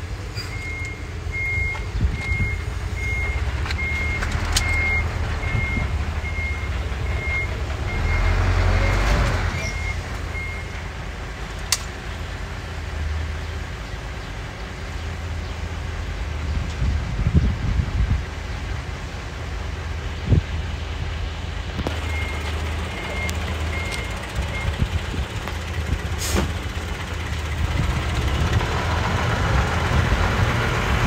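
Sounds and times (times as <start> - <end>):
truck engine rumble: 0.0 - 31.0
truck reversing alarm beeping: 0.3 - 11.0, 21.9 - 27.4.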